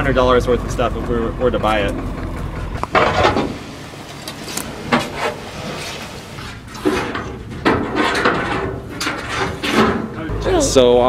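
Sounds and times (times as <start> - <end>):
wood chips scraping and sliding: 2.9 - 9.7.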